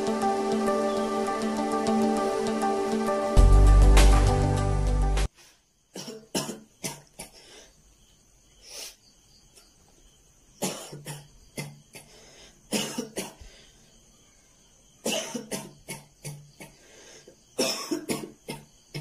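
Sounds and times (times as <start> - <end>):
background music: 0.0 - 5.3
man coughing: 6.0 - 7.4, 10.6 - 12.1, 12.7 - 13.4, 15.1 - 16.8, 17.6 - 19.0.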